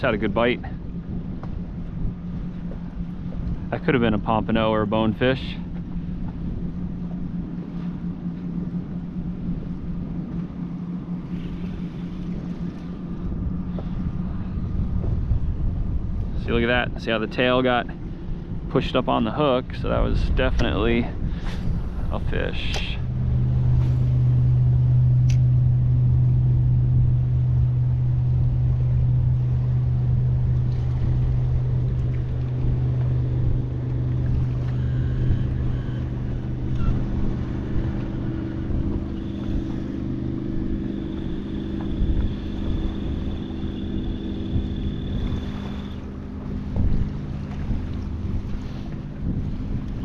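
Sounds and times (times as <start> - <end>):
faint high whine: 0.0 - 50.0
electric motor humming: 22.7 - 50.0.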